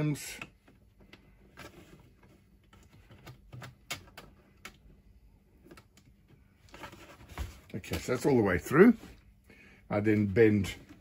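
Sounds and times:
wire clicking against plastic: 0:02.7 - 0:04.9.

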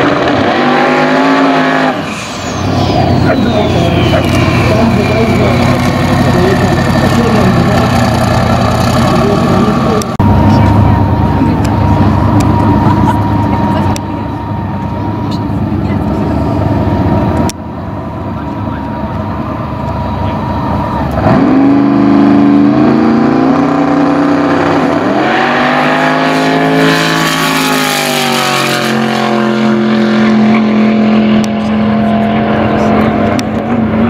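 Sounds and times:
race car accelerating at full throttle: 0:00.0 - 0:34.0
race car engine idling rough: 0:02.5 - 0:21.2.

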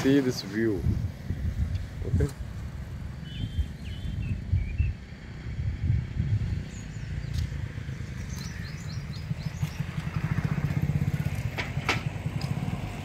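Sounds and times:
motorcycle engine running: 0:07.8 - 0:13.0.

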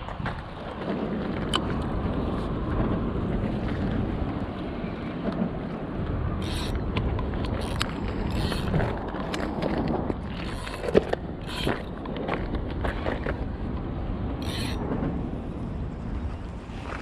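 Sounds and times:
wind buffeting microphone: 0:00.0 - 0:17.0
fishing reel rustles and clicks: 0:06.4 - 0:13.4, 0:14.4 - 0:14.8.

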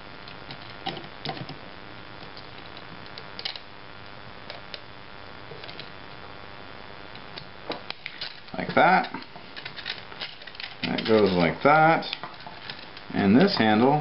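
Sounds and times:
steady hiss: 0:00.0 - 0:14.0
plastic parts clicking: 0:07.4 - 0:11.4.

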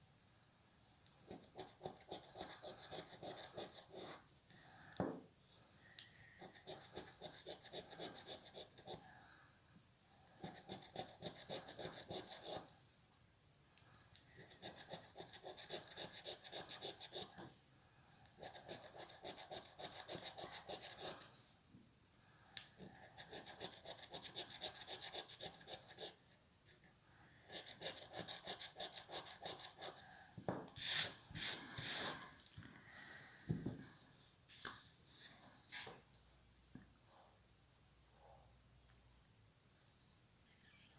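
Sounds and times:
coin scratching scratch card: 0:01.3 - 0:04.2, 0:06.5 - 0:09.0, 0:10.5 - 0:12.7, 0:14.4 - 0:17.4, 0:18.4 - 0:21.2, 0:23.1 - 0:26.2, 0:27.5 - 0:30.0.

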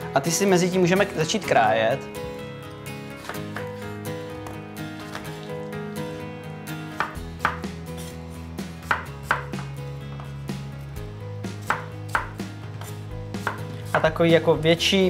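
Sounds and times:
background music: 0:00.0 - 0:15.0
knife knocking on wooden board: 0:08.8 - 0:10.3.

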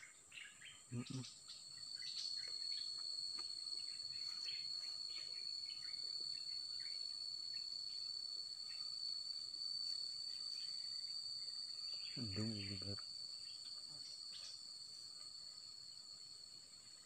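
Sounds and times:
bird chirps: 0:00.0 - 0:03.0, 0:10.3 - 0:14.6
high insect drone: 0:00.0 - 0:17.0
high insect trill: 0:00.0 - 0:17.0.

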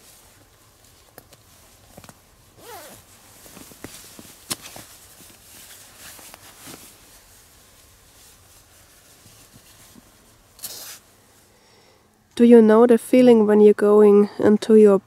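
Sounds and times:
sleeping bag fabric rustling: 0:00.0 - 0:11.1.

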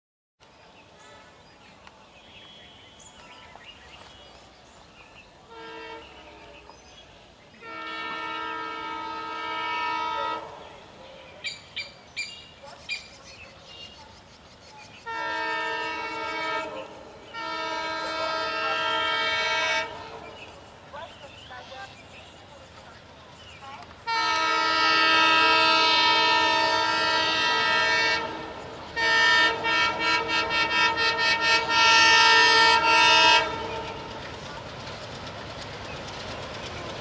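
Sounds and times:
train air horn blasts: 0:05.5 - 0:06.7, 0:07.6 - 0:10.8, 0:15.0 - 0:20.3, 0:24.0 - 0:34.3.

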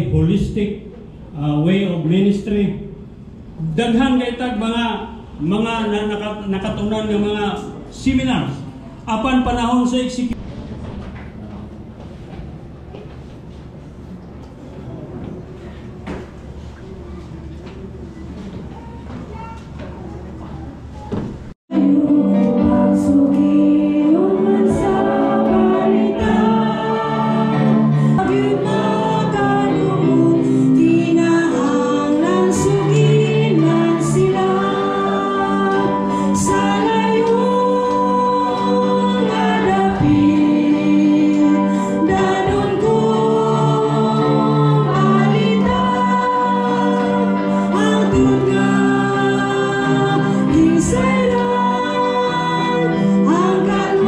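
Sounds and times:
congregation singing: 0:21.1 - 0:54.0
sustained instrumental accompaniment: 0:21.7 - 0:54.0.

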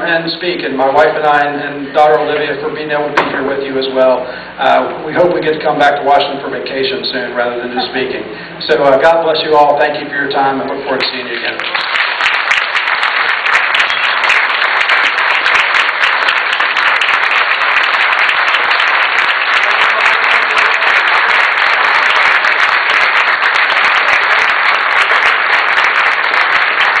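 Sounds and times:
large audience clapping: 0:11.0 - 0:27.0.

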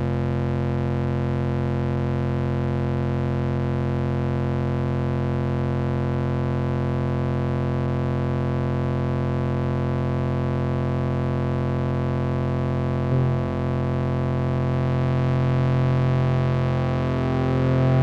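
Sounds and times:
synthesizer drone chord: 0:13.0 - 0:14.2, 0:15.3 - 0:18.0.

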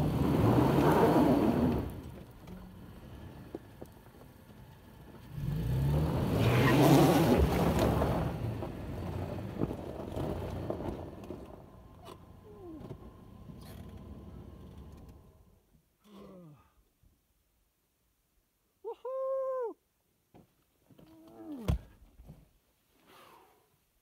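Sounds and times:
engine revving under load: 0:00.0 - 0:03.6, 0:05.1 - 0:15.4.

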